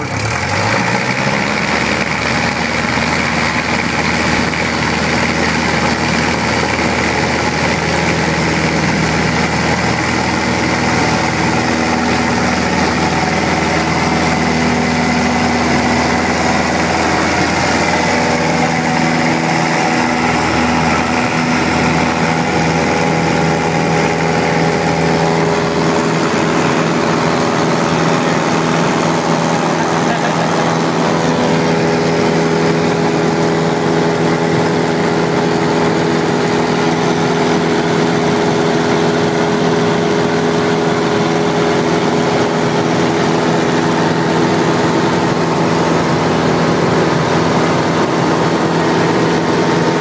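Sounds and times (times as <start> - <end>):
propeller plane engine running: 0.0 - 50.0.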